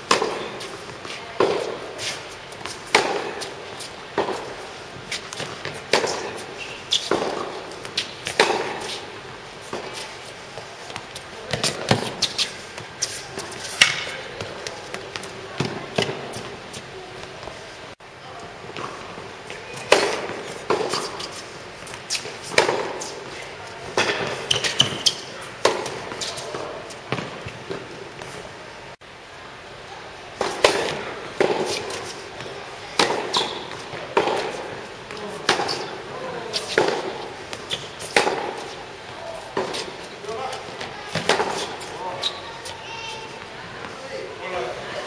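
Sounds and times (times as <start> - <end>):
racket striking tennis ball: 0.0 - 16.6, 19.8 - 27.9, 30.4 - 42.4
tennis ball bouncing: 0.0 - 17.6, 18.8 - 28.3, 30.4 - 42.8.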